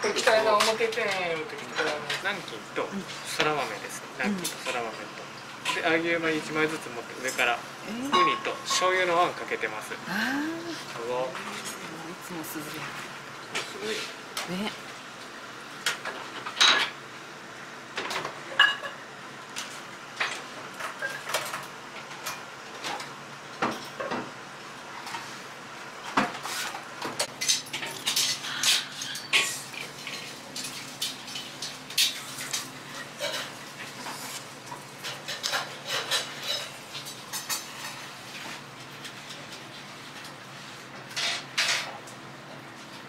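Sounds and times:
low background hum: 0.0s - 43.0s
dishes clinking: 8.0s - 9.0s, 18.6s - 19.0s.

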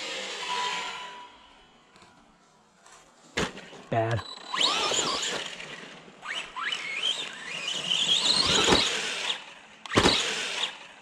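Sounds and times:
electric motor whining: 4.2s - 11.0s.

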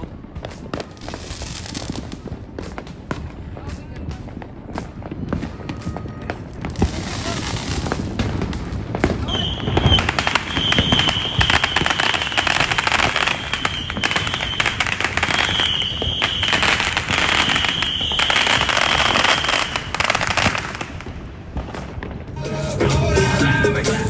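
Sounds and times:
high-pitched fireworks whistle: 0.0s - 2.9s, 4.7s - 8.4s, 9.0s - 21.1s
fireworks crackling pops: 0.0s - 23.6s.

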